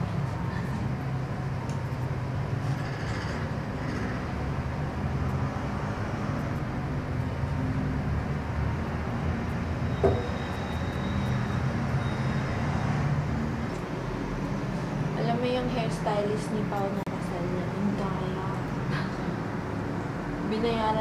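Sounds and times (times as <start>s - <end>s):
air conditioner humming: 0.0s - 2.8s, 13.3s - 21.0s
sharp knock: 10.0s - 10.3s.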